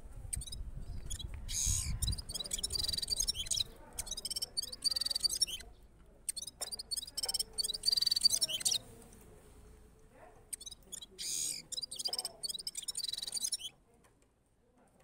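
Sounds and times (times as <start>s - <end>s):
songbird trilling: 0.3s - 8.8s, 10.5s - 13.7s.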